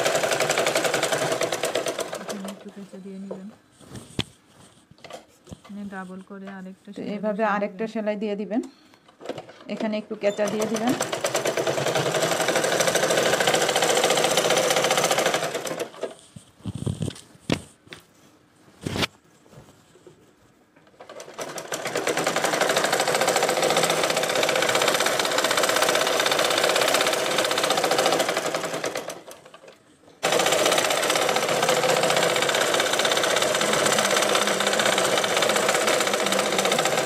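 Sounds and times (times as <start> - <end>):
sewing machine running: 0.0 - 3.0, 10.4 - 16.3, 20.9 - 37.0
sewing machine clicks: 20.9 - 37.0.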